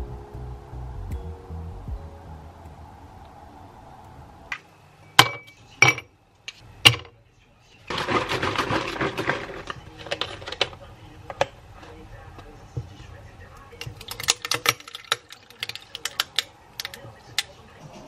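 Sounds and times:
ice cubes clinking into glass: 7.9s - 10.7s
plastic ice-cube tray rattling: 7.9s - 11.5s, 13.8s - 17.5s.

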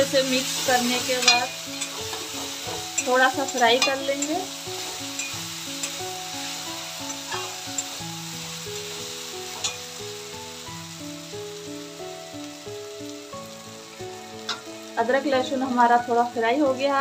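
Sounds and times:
spatula stirring in a pan: 0.0s - 10.0s
food sizzling in hot oil: 0.0s - 17.0s
soft background music: 0.0s - 17.0s
spatula clicking on pan: 1.2s - 6.0s.

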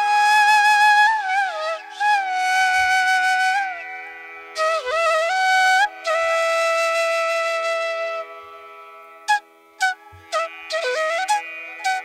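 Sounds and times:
flute playing held notes: 0.0s - 3.8s, 4.5s - 8.4s, 9.3s - 12.0s.

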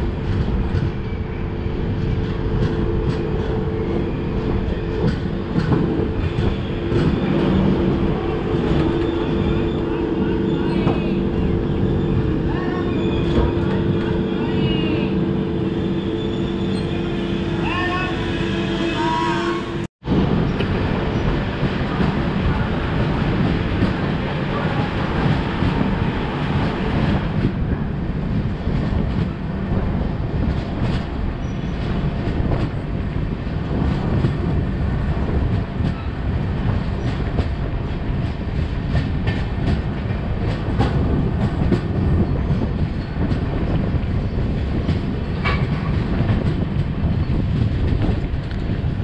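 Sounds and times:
train wheels rumbling on rails: 0.0s - 49.0s.

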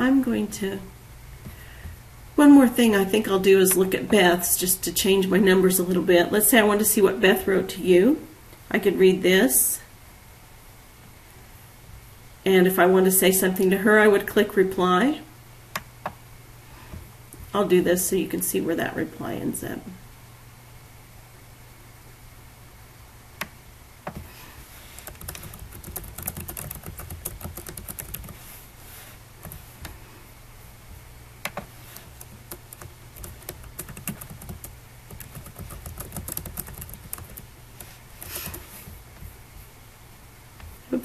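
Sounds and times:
typing on computer keyboard: 25.0s - 28.4s, 31.5s - 37.5s.

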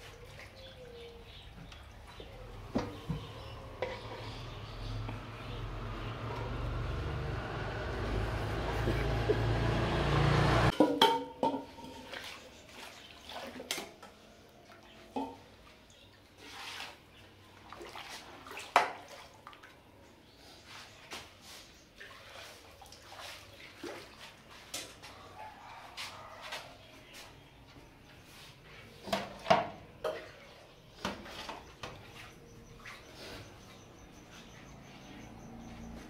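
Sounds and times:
ladles stirring broth: 0.0s - 7.0s, 7.9s - 19.7s.

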